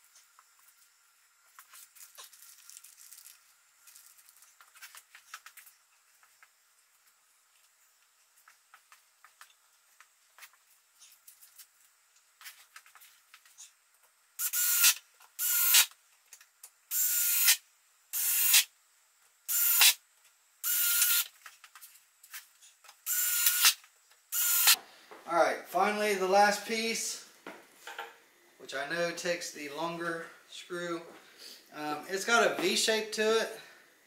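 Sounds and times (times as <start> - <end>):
cordless drill whirring: 14.4 - 15.9, 16.9 - 17.6, 19.5 - 20.0, 20.6 - 21.3, 23.1 - 24.8.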